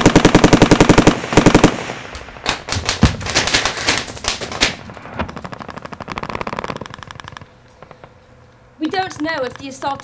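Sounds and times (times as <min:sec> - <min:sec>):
automatic gunfire bursts: 0:00.0 - 0:07.2.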